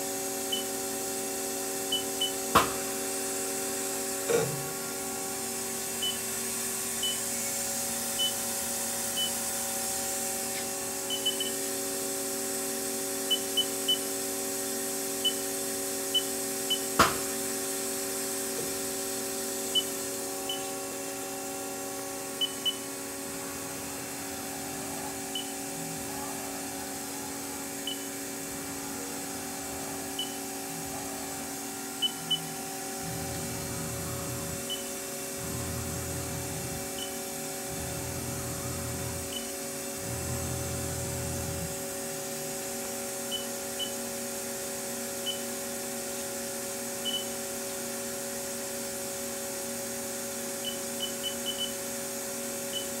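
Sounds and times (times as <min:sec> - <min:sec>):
lathe machine hum: 0:17.2 - 0:43.3.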